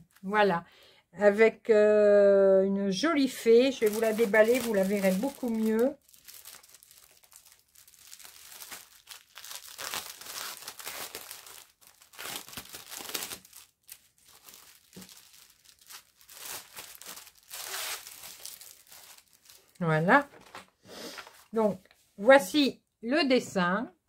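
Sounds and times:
plastic wrapping crinkling and tearing: 3.6s - 20.6s.

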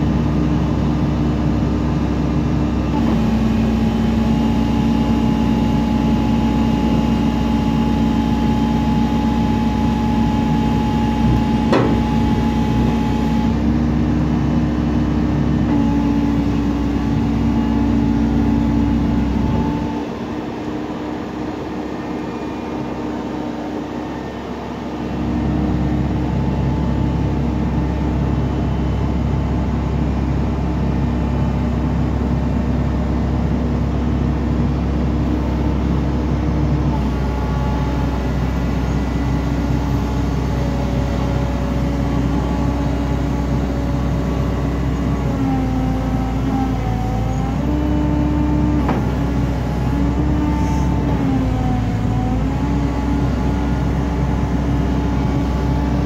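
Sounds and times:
diesel engine running: 0.0s - 56.0s
hydraulics working: 9.3s - 14.1s.

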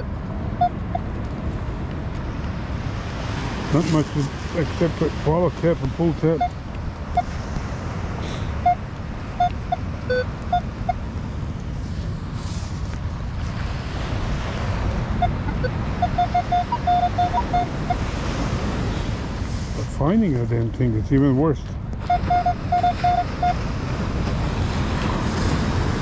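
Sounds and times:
surf rushing: 0.0s - 26.0s
metal detector beeps: 8.6s - 8.8s, 9.4s - 11.0s, 15.2s - 18.0s, 22.0s - 23.6s.

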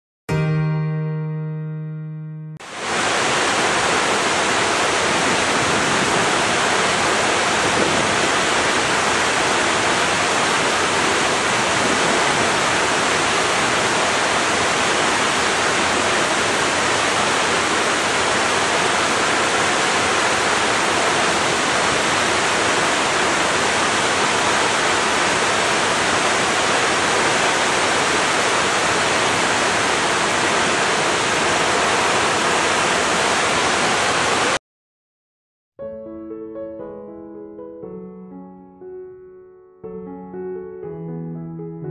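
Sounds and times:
waterfall rushing: 2.6s - 34.6s.

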